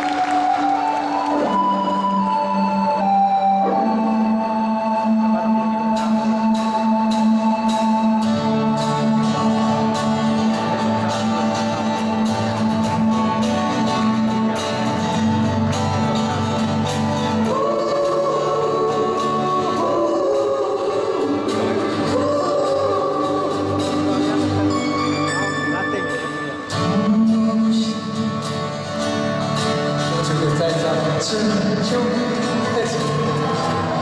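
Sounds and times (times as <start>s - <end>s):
pop-rock band playing: 0.0s - 34.0s
man singing: 17.4s - 25.7s, 26.6s - 28.8s, 30.2s - 34.0s.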